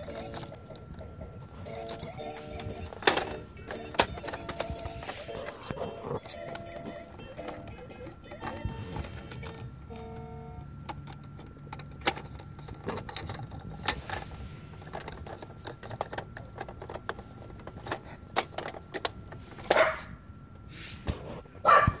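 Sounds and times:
plastic toy clicking and snapping: 1.7 - 4.8, 10.9 - 14.0, 14.8 - 19.2.

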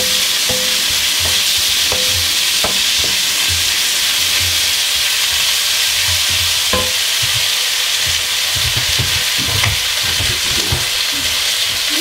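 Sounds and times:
wooden spoon scraping pan: 0.0 - 11.9
vegetables sizzling in wok: 0.0 - 12.0.

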